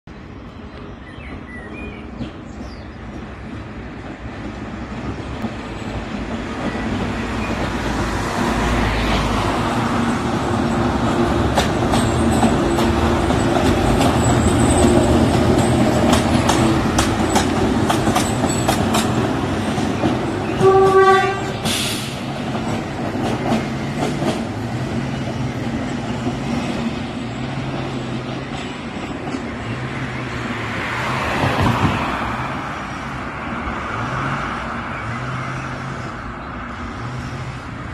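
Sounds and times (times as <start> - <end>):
diesel locomotive engine drone: 0.1 - 37.9
rail clicks: 0.8 - 32.5
train horn blast: 20.4 - 21.8
car passing: 30.0 - 37.9.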